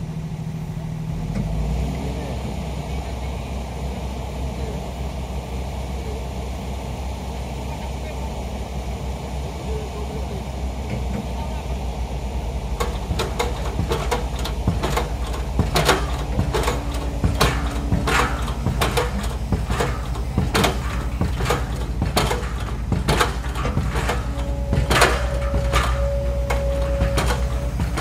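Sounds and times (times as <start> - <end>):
diesel engine droning: 0.0 - 28.0
thin steady whine: 2.1 - 28.0
metallic knocks and clanks: 12.8 - 28.0.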